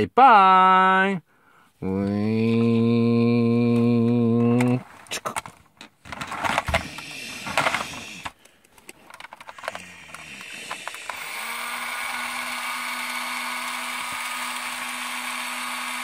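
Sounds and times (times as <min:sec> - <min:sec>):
plastic clicks and rattles: 0:04.5 - 0:11.2
toy launcher motor whine: 0:06.5 - 0:08.4, 0:09.1 - 0:16.0.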